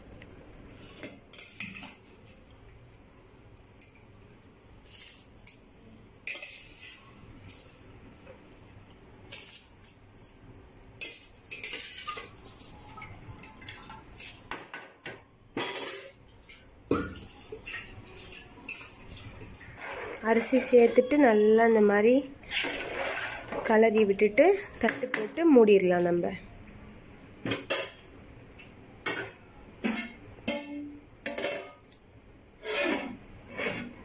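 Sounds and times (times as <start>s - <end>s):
metal spoon scraping metal pot: 6.2s - 7.8s, 19.7s - 21.2s, 22.4s - 23.7s, 32.6s - 34.0s.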